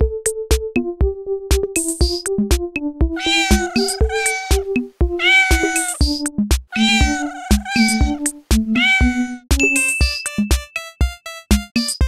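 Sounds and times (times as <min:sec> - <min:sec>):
long high cry: 0:03.2 - 0:04.6, 0:05.2 - 0:06.0, 0:06.8 - 0:08.2, 0:08.8 - 0:09.4
electronic children's music: 0:03.2 - 0:12.0.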